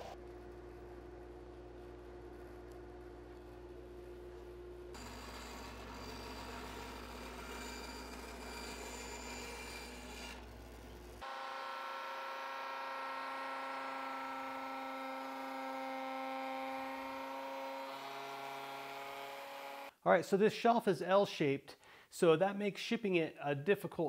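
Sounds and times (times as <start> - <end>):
router high whine: 5.0 - 8.9, 11.2 - 19.9
bandsaw cutting wood: 5.0 - 10.6, 11.2 - 19.9.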